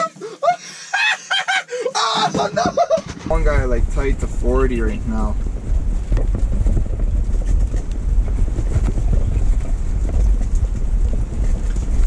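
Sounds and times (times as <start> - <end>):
low rumble: 3.1 - 12.0.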